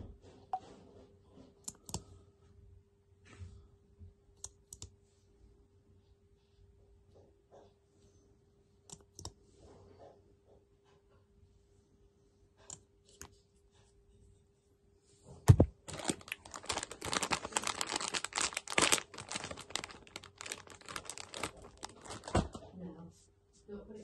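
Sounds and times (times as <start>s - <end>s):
plastic packet crinkling: 15.5s - 22.6s.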